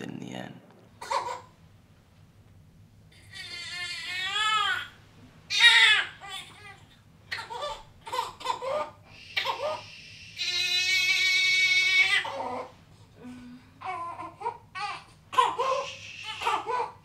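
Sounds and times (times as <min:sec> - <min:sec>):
newborn baby crying: 0:01.0 - 0:01.5, 0:03.1 - 0:12.8, 0:13.8 - 0:17.0.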